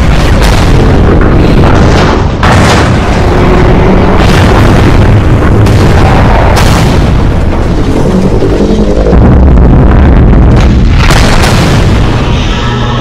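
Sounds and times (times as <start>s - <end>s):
deep rumble: 0.0s - 13.0s
explosion booms: 0.0s - 13.0s
sharp hits: 0.0s - 13.0s.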